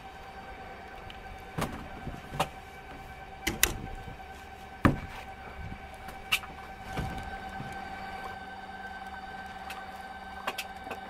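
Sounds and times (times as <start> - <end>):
steady hum: 0.0 - 11.0
knocks and thumps on boat deck: 1.6 - 2.6, 4.8 - 7.8.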